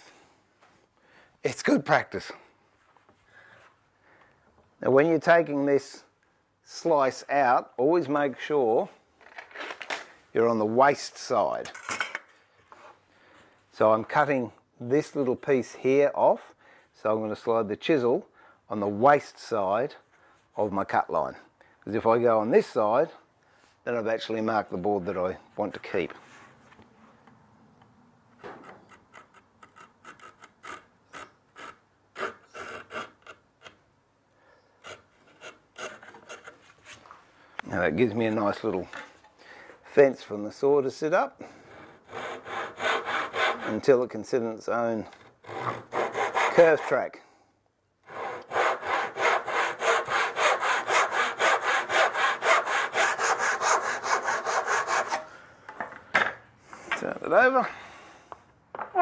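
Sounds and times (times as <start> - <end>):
wood chisel scraping strokes: 28.4 - 33.8, 34.8 - 37.2, 41.6 - 43.9, 45.1 - 47.0, 48.1 - 55.3
handsaw cutting wood: 29.8 - 33.4, 34.8 - 36.6, 41.7 - 43.8, 45.2 - 47.0, 48.0 - 55.3.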